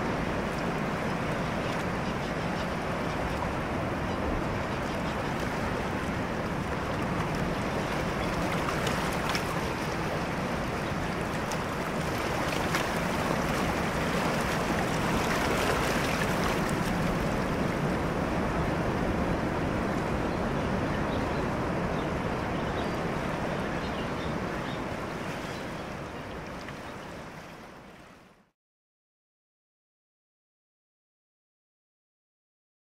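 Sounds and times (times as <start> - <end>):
surf washing: 0.0 - 28.3
wind: 0.0 - 28.6.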